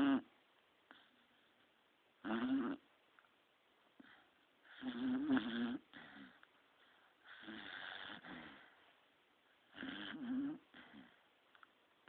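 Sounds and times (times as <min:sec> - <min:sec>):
dog snoring: 0:00.0 - 0:00.3, 0:02.2 - 0:02.9, 0:04.0 - 0:06.4, 0:07.2 - 0:08.8, 0:09.7 - 0:11.2.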